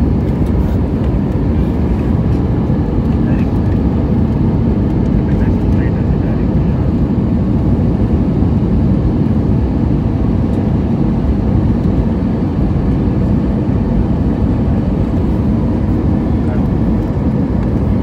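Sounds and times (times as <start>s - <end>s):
jet engines rumbling: 0.0s - 18.0s.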